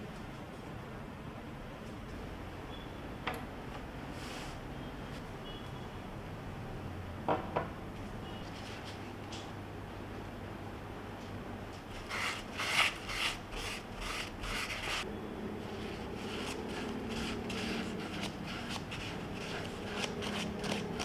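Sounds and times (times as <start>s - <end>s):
tissue rubbing on bamboo: 12.0s - 15.0s, 15.7s - 21.0s.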